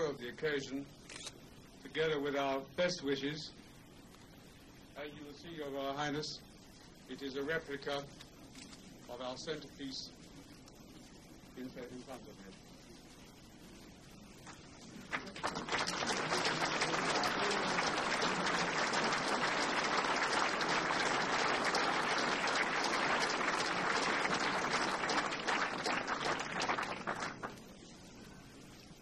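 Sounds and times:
crowd applauding: 0:14.9 - 0:27.6.

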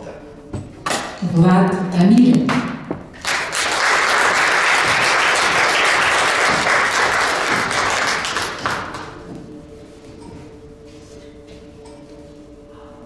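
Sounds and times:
faint steady hum: 0:00.0 - 0:03.5
audience applauding: 0:03.2 - 0:09.2.

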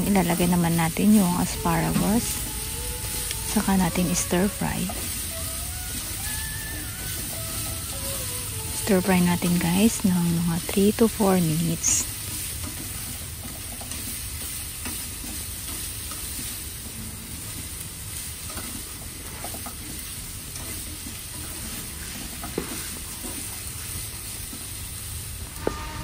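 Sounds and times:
food sizzling in frying pan: 0:00.0 - 0:26.0
spatula scraping and tapping pan: 0:12.1 - 0:24.8.

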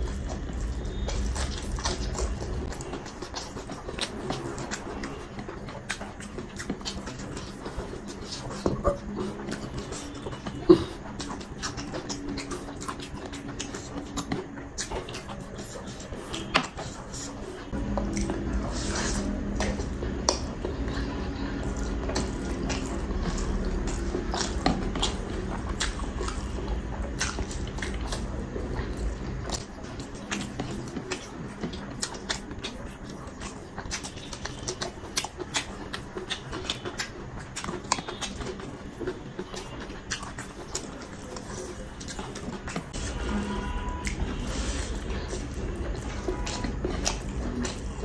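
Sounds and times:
wet chewing and lip smacking: 0:00.0 - 0:48.0.

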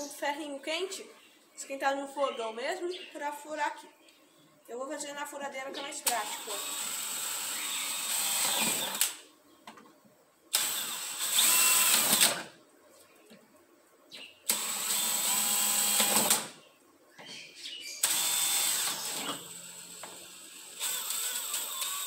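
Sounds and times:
cordless drill boring plastic: 0:06.2 - 0:09.2, 0:10.5 - 0:12.4, 0:14.5 - 0:16.5, 0:18.0 - 0:22.0.

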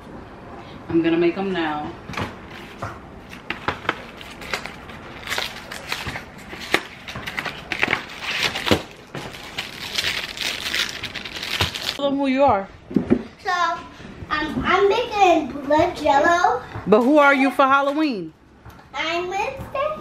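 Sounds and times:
plastic packaging crinkling: 0:03.3 - 0:12.0
cardboard tearing: 0:03.4 - 0:12.0.

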